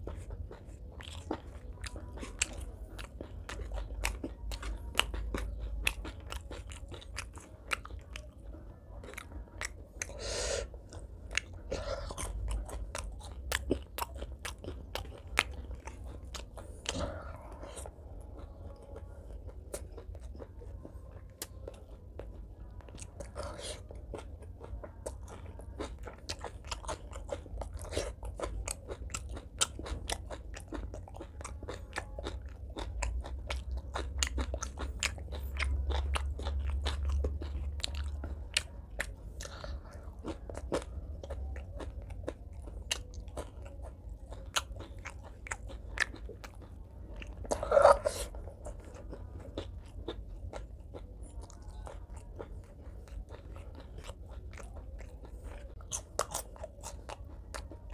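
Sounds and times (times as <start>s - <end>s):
person chewing crunchy food: 0.0s - 57.9s.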